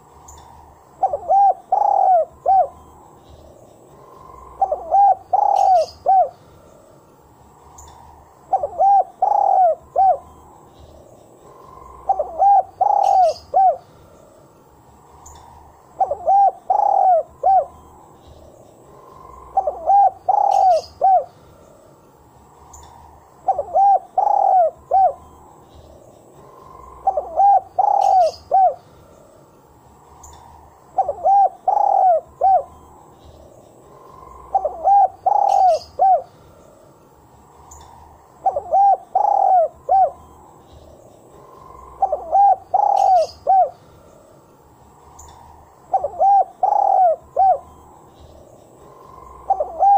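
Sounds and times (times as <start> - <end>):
dove cooing: 1.0 - 3.0, 3.9 - 6.6, 8.5 - 10.4, 11.4 - 14.1, 16.0 - 17.9, 19.0 - 21.4, 23.4 - 25.4, 26.5 - 28.9, 30.3 - 32.9, 33.9 - 36.3, 37.7 - 40.4, 41.5 - 43.8, 45.2 - 47.8, 49.0 - 49.9.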